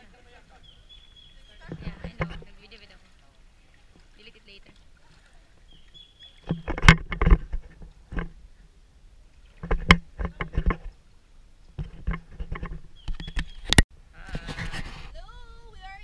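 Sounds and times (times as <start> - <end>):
water splashing from wading: 0.0 - 8.6, 9.2 - 12.9.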